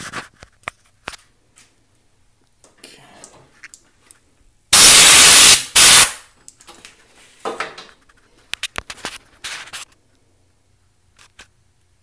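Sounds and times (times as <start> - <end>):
compressed air blasts: 4.7 - 6.2.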